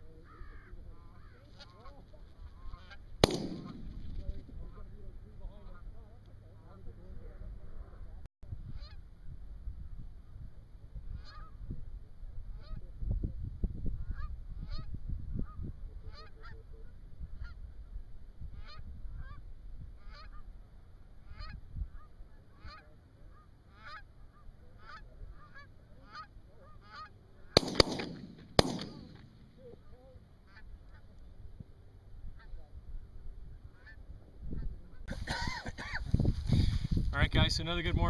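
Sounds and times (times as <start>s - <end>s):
geese honking: 0.1s - 6.0s, 11.1s - 11.6s, 16.0s - 17.6s, 18.6s - 19.4s, 20.0s - 20.5s, 21.2s - 31.2s
shotgun shots: 3.2s - 4.6s, 27.6s - 29.5s.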